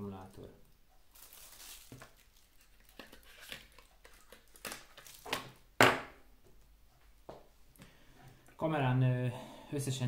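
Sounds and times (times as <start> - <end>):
plastic accessories rustling and clicking: 1.1 - 5.6.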